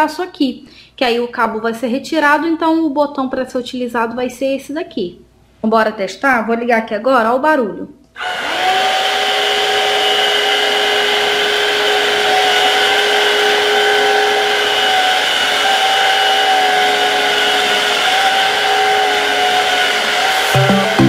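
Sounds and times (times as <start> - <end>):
vacuum cleaner running: 8.2 - 21.0.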